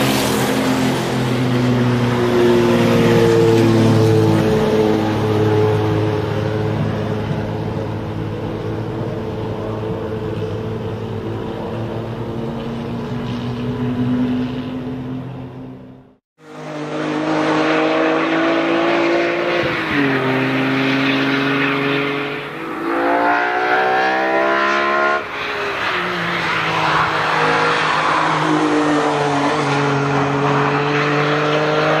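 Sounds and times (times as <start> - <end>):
race car engine revving with gear changes: 0.0 - 32.0
race car engine running steadily: 4.2 - 18.2.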